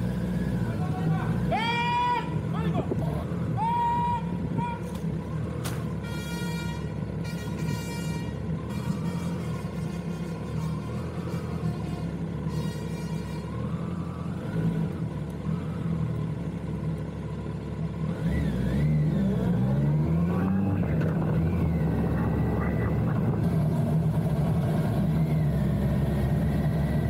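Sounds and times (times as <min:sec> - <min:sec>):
motorcycle engine revving: 0:13.2 - 0:27.0.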